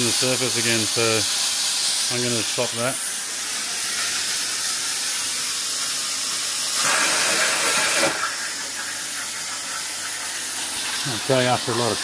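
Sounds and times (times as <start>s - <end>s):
compressed air hissing: 0.0s - 12.0s.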